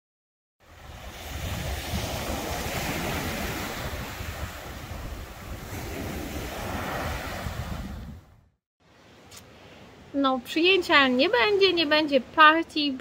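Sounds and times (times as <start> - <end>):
sea waves breaking on beach: 0.6 - 8.3
wind buffeting microphone: 0.7 - 8.5.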